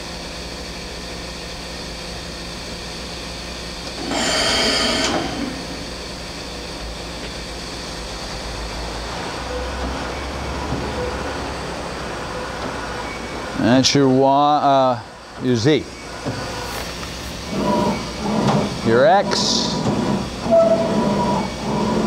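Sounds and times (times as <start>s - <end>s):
machine hum: 0.0s - 22.0s
loud tool change burst: 4.0s - 5.6s.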